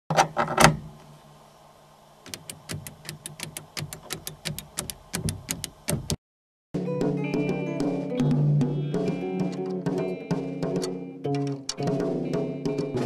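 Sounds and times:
low electrical hum: 0.1 - 6.2
rapid sharp clicks: 2.3 - 6.2.

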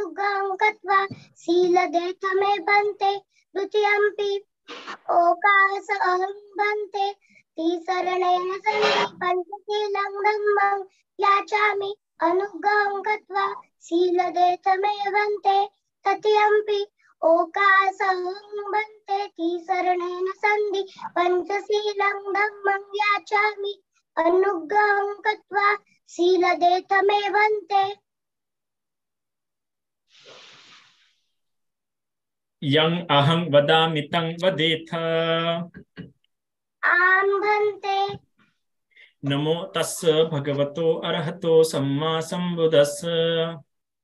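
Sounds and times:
girl chanting: 0.0 - 4.5, 5.1 - 28.0, 36.8 - 38.2.

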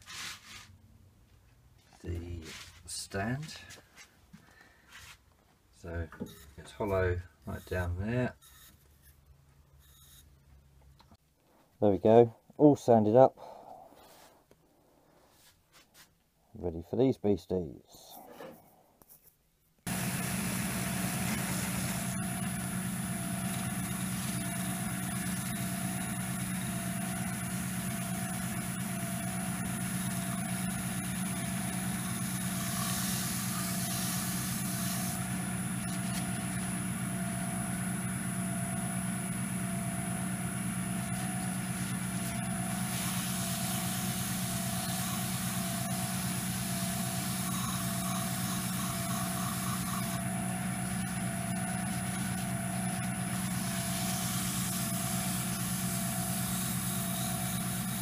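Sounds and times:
paper towel rubbing spinning wood: 0.0 - 0.7, 19.9 - 36.9, 40.9 - 58.0
wood lathe running: 19.9 - 58.0.

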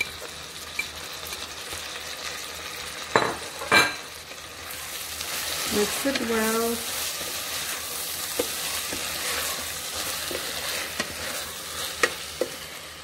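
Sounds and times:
vegetables sizzling in a pot: 0.0 - 13.0
spatula stirring: 4.4 - 13.0.

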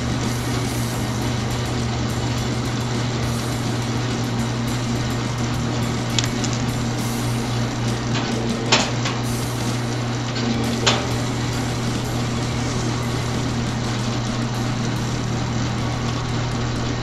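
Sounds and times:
wire stripping machine running: 0.0 - 17.0.

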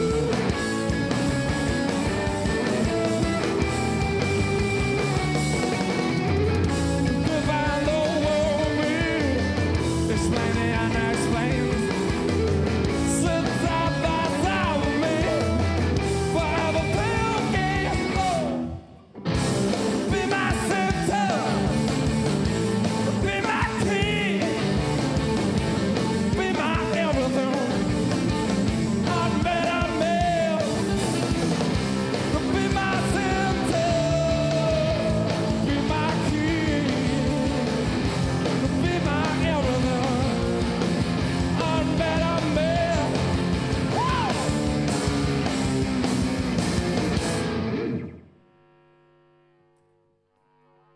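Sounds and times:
rock band playing live: 0.0 - 48.2
person singing lead vocal: 7.0 - 19.0, 19.8 - 24.8, 26.0 - 31.0, 32.0 - 44.7.

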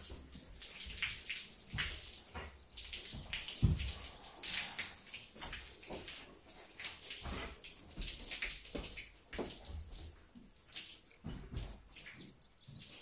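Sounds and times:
hose water spraying and splashing: 0.0 - 13.0.

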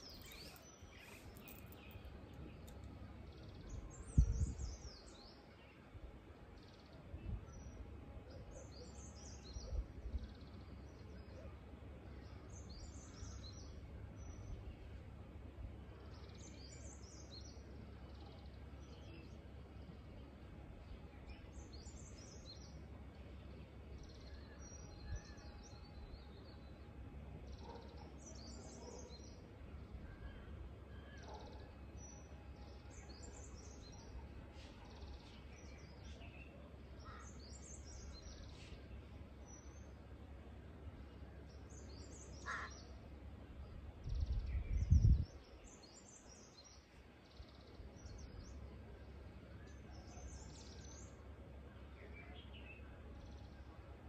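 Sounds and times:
birds chirping: 0.0 - 5.4, 41.5 - 43.0.

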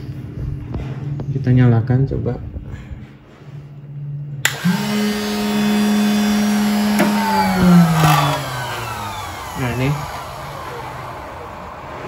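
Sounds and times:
electric motor humming and whining: 4.4 - 12.0.

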